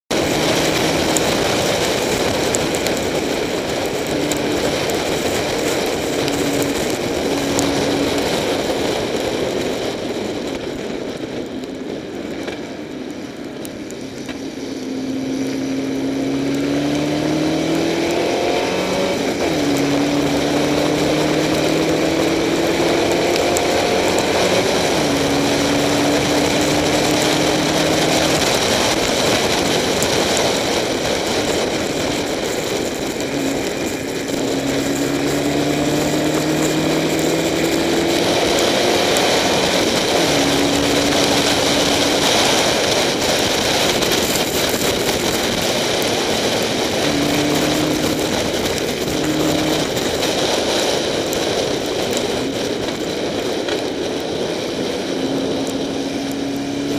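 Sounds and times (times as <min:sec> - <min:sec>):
race car engine: 0:00.0 - 0:56.9
wind and rain spray hiss: 0:13.8 - 0:56.9.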